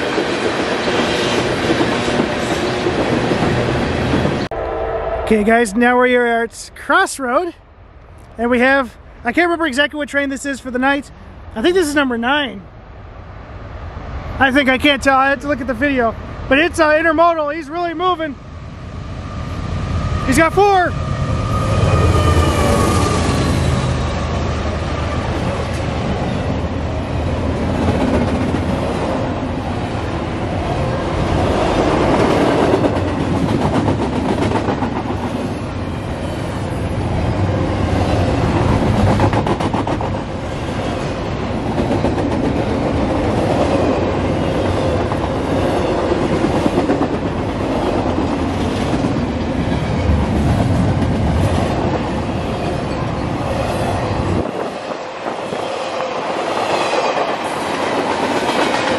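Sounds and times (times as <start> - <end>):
train wheels on rails: 0.0 - 4.6, 18.6 - 58.9
diesel locomotive passing: 0.0 - 58.9.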